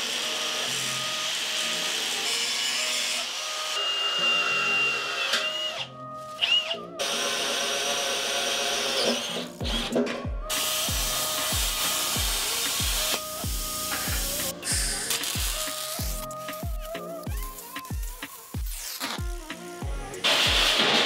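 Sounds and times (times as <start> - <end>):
angle grinder on steel: 0.0 - 10.0, 10.6 - 16.3
cordless drill whining into steel: 0.0 - 16.4
background music: 0.0 - 21.0.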